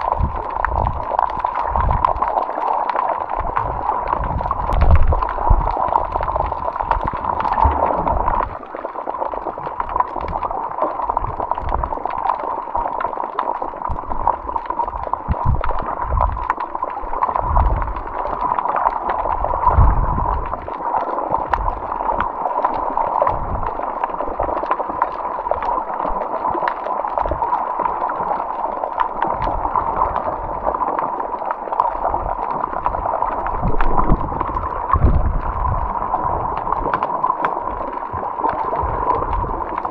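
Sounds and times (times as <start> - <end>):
muffled water gurgling and sloshing: 0.0 - 39.9
low thumps: 7.3 - 8.5.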